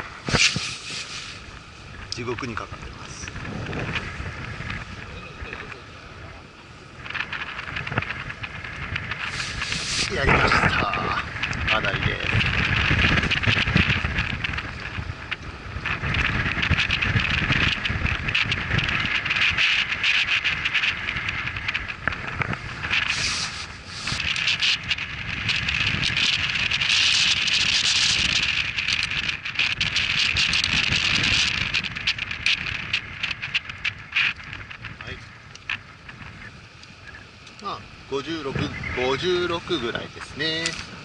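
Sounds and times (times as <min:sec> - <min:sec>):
steady hiss: 0:00.0 - 0:41.0
wind buffeting microphone: 0:00.0 - 0:41.0
clicks and rustles of handling: 0:07.0 - 0:37.7.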